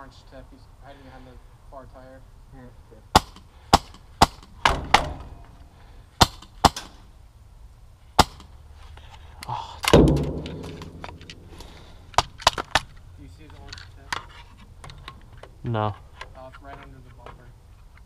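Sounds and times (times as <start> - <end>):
rustle: 0.0 - 18.0
loud thump: 4.6 - 5.6, 9.9 - 11.9
airsoft gun shots: 9.8 - 11.6.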